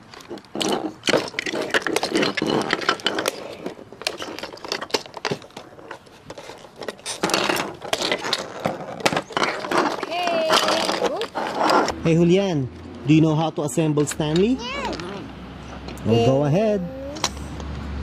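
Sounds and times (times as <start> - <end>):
plastic blocks clicking: 0.1 - 11.8.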